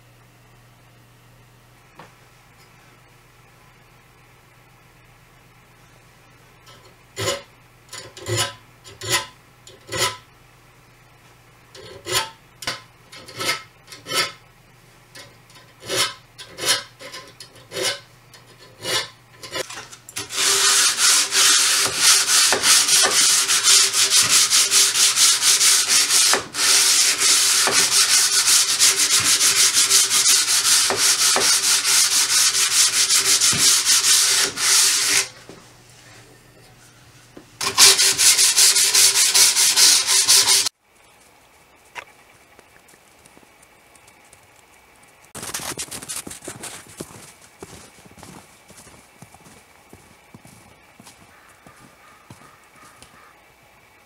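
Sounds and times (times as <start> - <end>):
block rubbing along saw blade: 7.2 - 10.2, 11.8 - 14.4, 15.2 - 35.4, 37.6 - 40.7
saw blade scraping strokes: 11.8 - 14.4, 15.2 - 35.5, 37.6 - 40.7.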